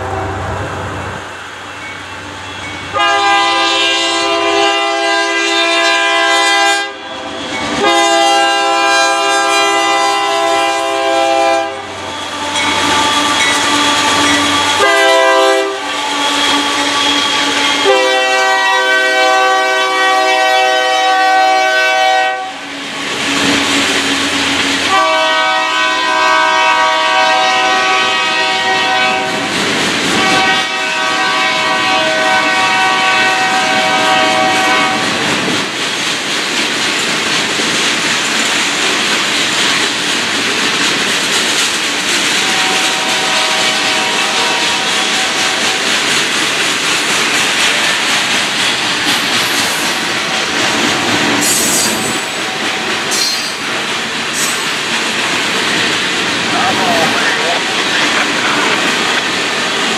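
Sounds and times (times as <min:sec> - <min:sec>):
locomotive horn blasts: 0:02.9 - 0:07.1, 0:07.8 - 0:22.6, 0:24.8 - 0:29.5, 0:30.1 - 0:35.2, 0:42.4 - 0:45.8
train wheels clattering over rails: 0:22.6 - 0:25.2, 0:29.1 - 0:30.7, 0:33.5 - 0:59.9.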